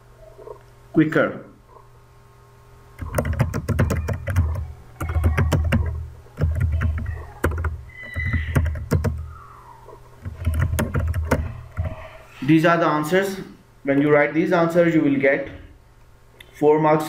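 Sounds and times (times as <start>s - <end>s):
keyboard typing: 3.0s - 9.3s, 10.2s - 12.1s.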